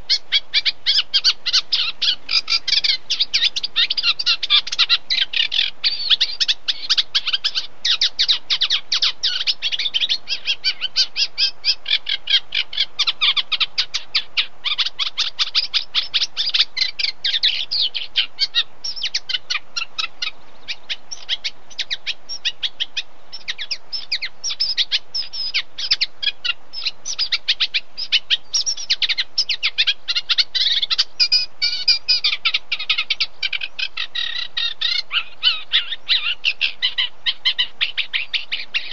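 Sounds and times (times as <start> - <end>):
warbler singing: 0.0 - 38.9.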